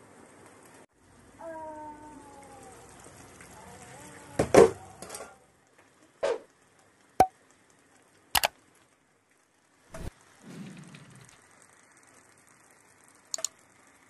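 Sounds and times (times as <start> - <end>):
mouse clicks: 13.3 - 13.5.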